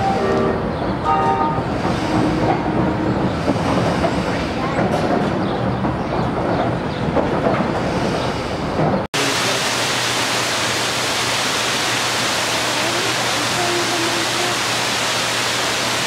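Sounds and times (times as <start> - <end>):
carousel mechanical rumble and clatter: 1.6 - 9.1
rushing water: 9.2 - 16.0.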